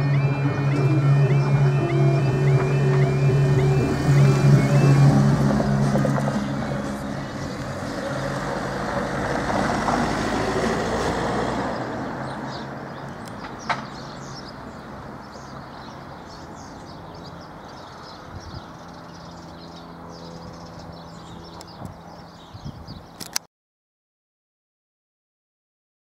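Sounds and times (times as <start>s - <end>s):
vehicle rumble: 0.0s - 23.4s
sharp click: 23.2s - 23.5s.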